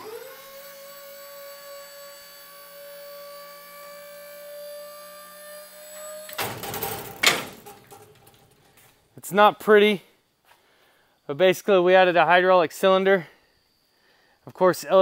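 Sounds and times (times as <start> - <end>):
hydraulic pump motor whining: 0.0 - 8.5
metal clunk: 6.3 - 8.8.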